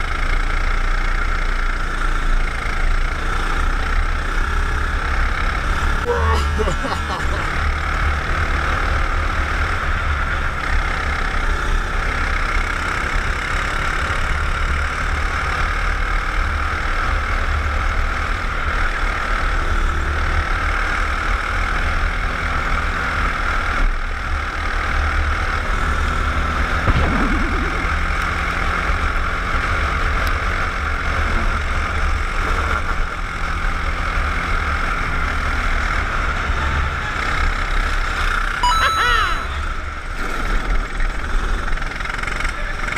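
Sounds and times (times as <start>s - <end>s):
kart engine running: 0.0s - 38.6s, 39.4s - 42.9s
rushing noise: 26.9s - 28.8s.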